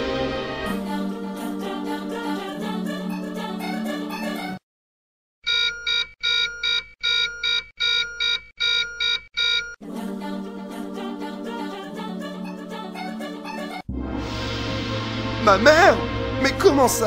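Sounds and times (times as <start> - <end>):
song with singing: 0.0 - 4.6, 9.8 - 16.8
high electronic ringtone beeping: 5.5 - 9.8.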